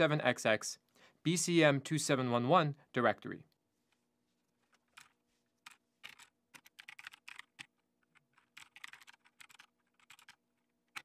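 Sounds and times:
typing on computer keyboard: 4.6 - 11.0.

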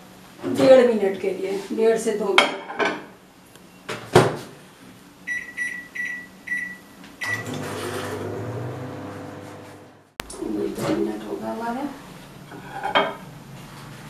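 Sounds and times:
microwave humming: 5.2 - 11.2
short keypad beeps: 5.3 - 7.6.

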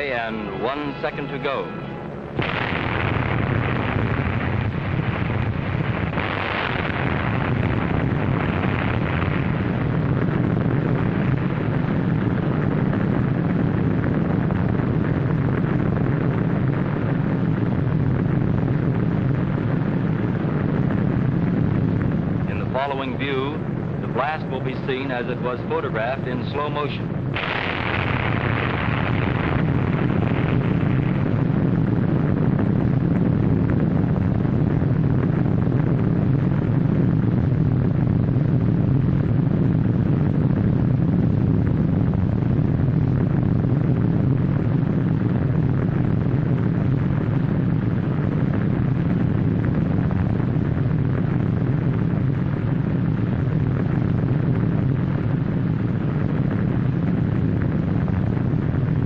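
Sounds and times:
bomb blast rumble: 0.0 - 59.0.

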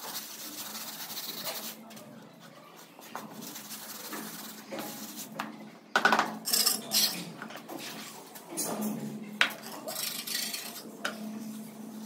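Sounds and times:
hand tools clinking and scraping: 6.4 - 11.2.

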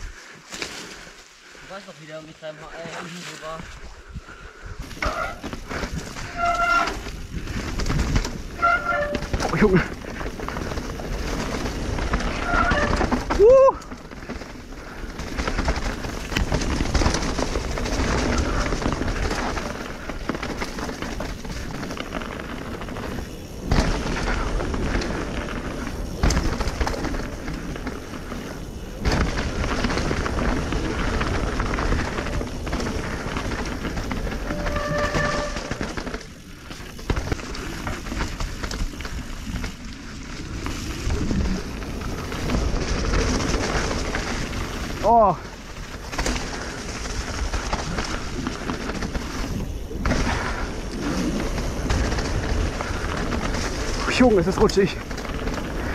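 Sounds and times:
bike rattling: 0.0 - 55.9
bike tyres rolling over mud: 0.0 - 55.9.

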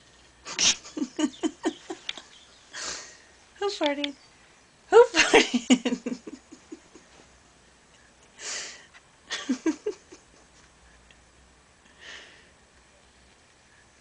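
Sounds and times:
soft breathy laughter: 0.4 - 3.2, 5.1 - 7.3, 8.5 - 10.9.

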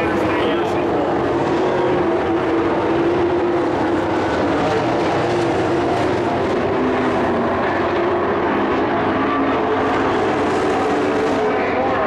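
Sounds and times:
race truck engines droning: 0.0 - 12.0.

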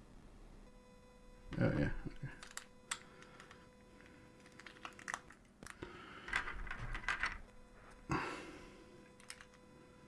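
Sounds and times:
plastic bricks clicking and rattling: 4.4 - 7.4, 9.2 - 9.5.

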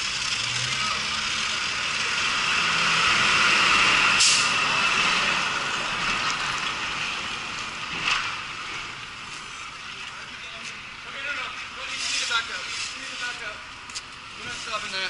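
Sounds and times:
fire extinguisher hissing: 4.2 - 4.6.

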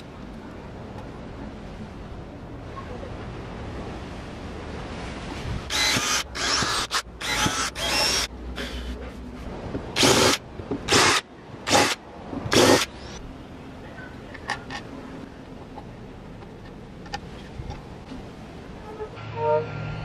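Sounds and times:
power drill boring wood: 5.7 - 8.8, 10.0 - 12.9.

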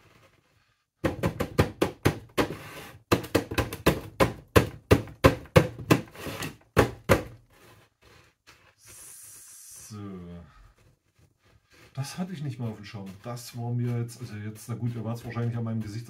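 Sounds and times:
plastic pot knocking: 1.0 - 2.5, 3.1 - 6.1.

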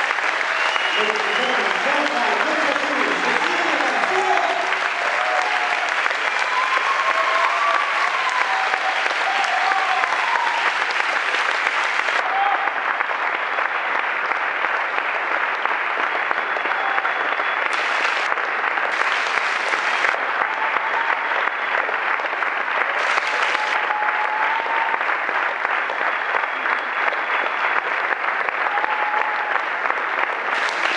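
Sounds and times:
audience applauding: 0.0 - 30.9.

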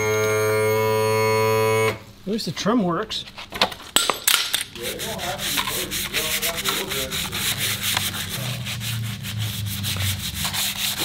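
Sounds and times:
sanding pad scraping metal: 4.8 - 11.0.

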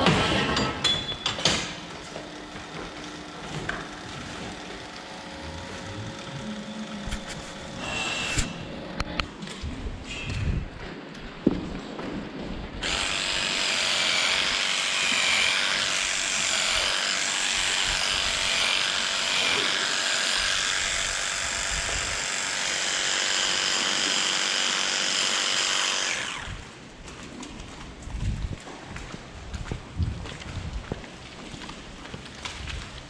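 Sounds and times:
electric clippers whining: 1.9 - 9.4, 12.8 - 26.9.

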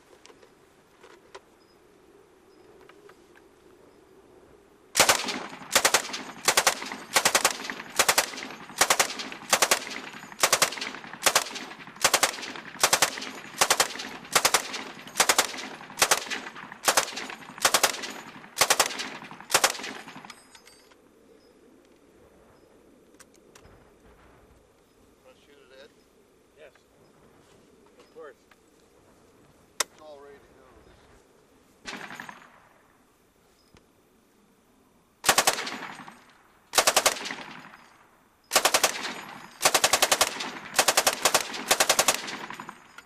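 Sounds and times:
machine gun firing: 5.0 - 20.4, 31.9 - 32.6, 35.2 - 43.0.

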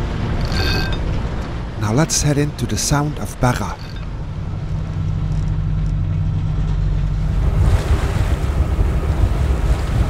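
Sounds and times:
low drone of sailing yacht: 0.0 - 10.0
gusty rush of wind and spray: 7.1 - 10.0.

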